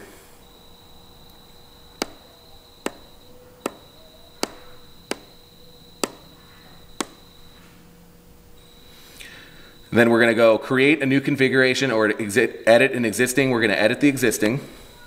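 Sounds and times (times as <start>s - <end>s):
pen tapping plastic touchscreen: 1.3s - 5.4s, 6.0s - 6.3s, 7.0s - 7.3s.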